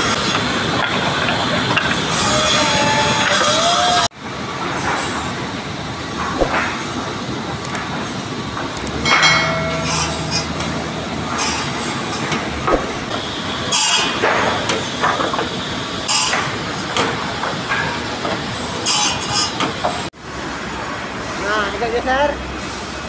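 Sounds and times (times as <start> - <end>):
sawmill machine noise: 0.0 - 21.8.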